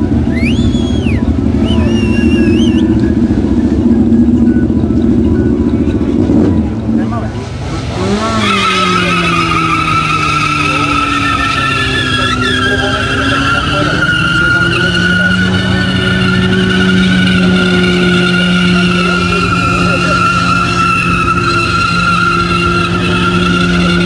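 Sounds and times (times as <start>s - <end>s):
car engine at high revs: 0.0s - 24.0s
tyres squealing: 8.1s - 24.0s.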